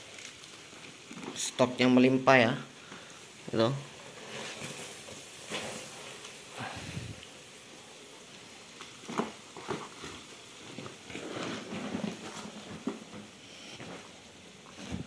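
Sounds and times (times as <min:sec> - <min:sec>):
cardboard egg trays rustling: 0:09.0 - 0:15.0.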